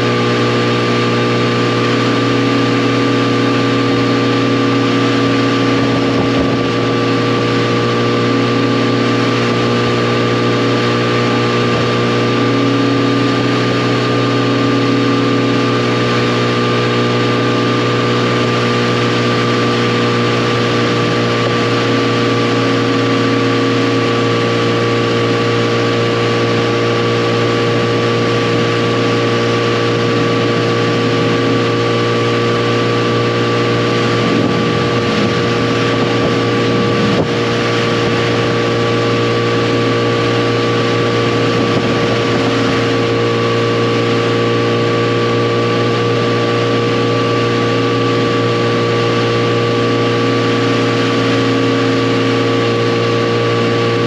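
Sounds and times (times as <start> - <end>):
motorcycle engine cruising: 0.0 - 54.0
steady rushing noise: 0.0 - 54.0.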